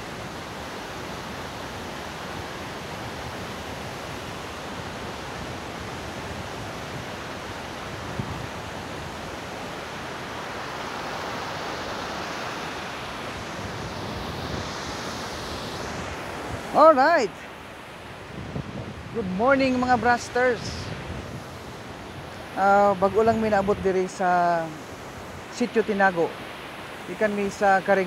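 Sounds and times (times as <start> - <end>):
wind rumble on microphone: 0.0 - 11.0, 12.1 - 17.3, 18.0 - 25.5
river rushing over rocks: 0.0 - 28.0.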